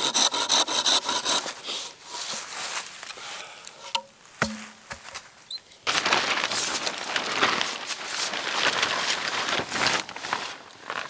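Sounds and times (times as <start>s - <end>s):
plastic tarp crinkling rustle: 2.2s - 3.1s, 5.8s - 11.0s.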